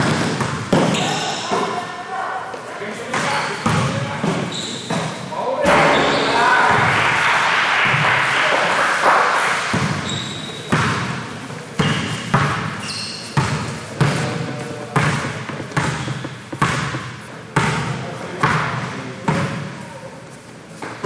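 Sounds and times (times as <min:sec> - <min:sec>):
basketball bouncing on gym floor: 0:00.0 - 0:01.6, 0:03.1 - 0:05.8, 0:09.7 - 0:19.7
shoe squeaks: 0:00.7 - 0:01.8, 0:04.2 - 0:05.3, 0:09.9 - 0:10.9, 0:11.8 - 0:18.0.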